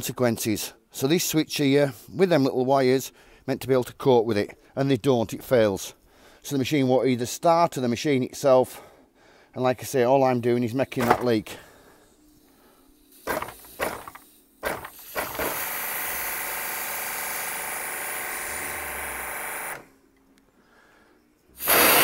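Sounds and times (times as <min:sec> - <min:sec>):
loud burst of hiss: 0:12.5 - 0:16.0, 0:21.5 - 0:22.0
pressure washer motor running: 0:13.3 - 0:19.8, 0:21.6 - 0:22.0.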